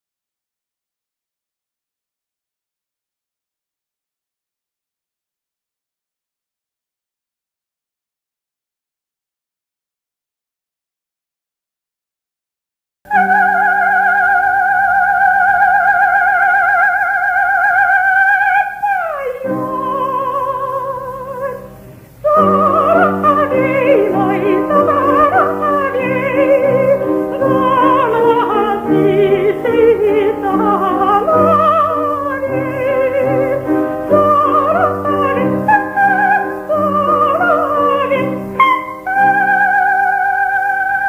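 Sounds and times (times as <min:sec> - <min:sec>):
soprano singing vocalise: 0:13.1 - 0:41.0
instrumental accompaniment: 0:21.2 - 0:39.7.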